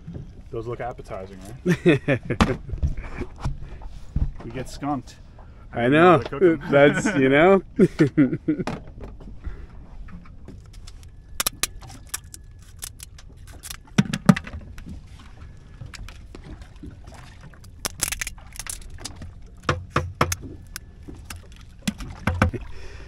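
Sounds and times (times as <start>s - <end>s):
shears snipping crab shells: 11.4s - 13.8s, 17.7s - 18.9s.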